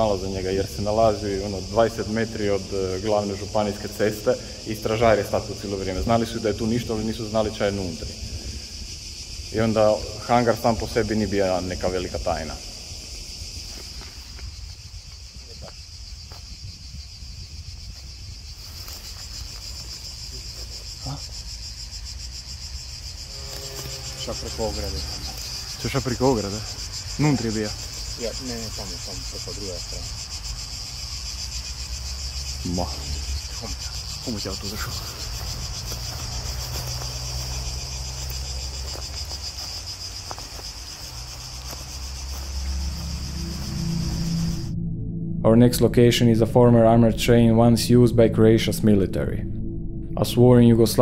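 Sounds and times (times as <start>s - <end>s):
cicadas buzzing: 0.0s - 51.0s
low steady rumble: 42.4s - 51.0s.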